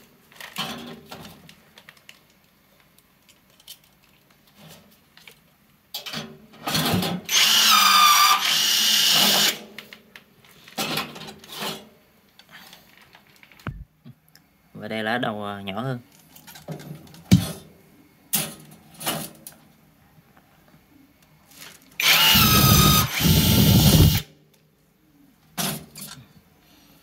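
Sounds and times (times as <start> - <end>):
drill boring through sheet metal: 7.3 - 9.6, 22.0 - 24.2
power tool bursts: 7.3 - 9.6, 22.0 - 24.2.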